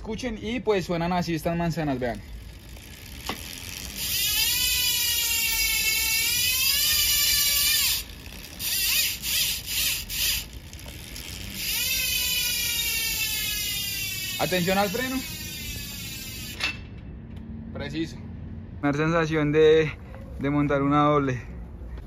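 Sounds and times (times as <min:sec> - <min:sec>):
bicycle hub freewheeling buzz: 0:00.0 - 0:17.0.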